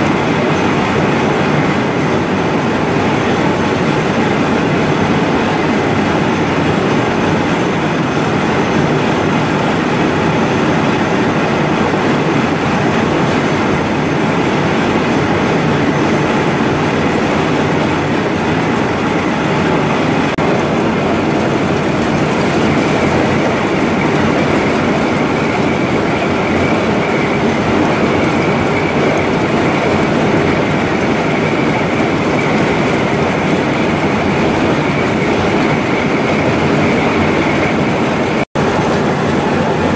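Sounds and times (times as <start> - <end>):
coolant gushing and splashing: 0.0 - 39.9
lathe boring metal: 0.0 - 39.9
steady high whine: 0.0 - 39.9.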